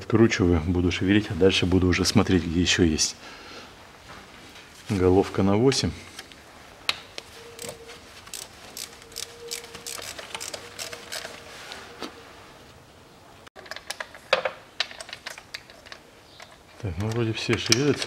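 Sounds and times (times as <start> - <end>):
metal socket tool clicking: 7.6 - 11.4.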